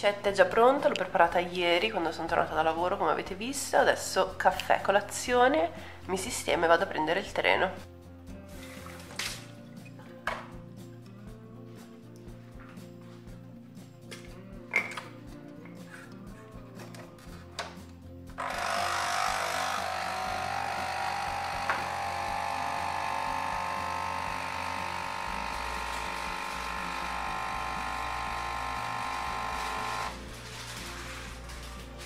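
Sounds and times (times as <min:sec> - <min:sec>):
coffee machine pump running: 0:18.4 - 0:31.3.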